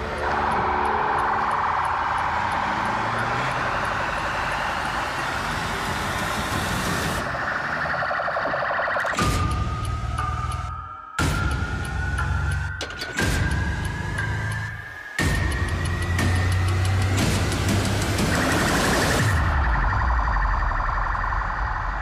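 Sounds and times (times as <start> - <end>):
police siren warbling: 0.0 - 10.7, 18.0 - 22.0.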